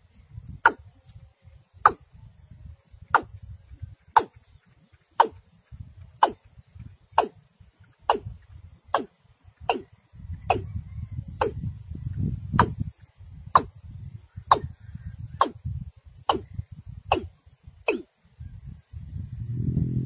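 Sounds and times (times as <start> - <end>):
bird calling sharp notes: 13.5 - 18.2
low rumble: 19.2 - 20.0.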